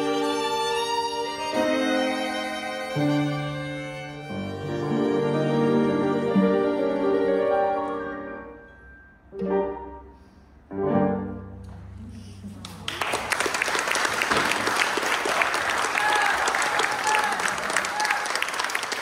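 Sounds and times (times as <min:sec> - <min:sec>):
piano quintet chords: 0:00.0 - 0:12.4
audience applause: 0:12.6 - 0:19.0.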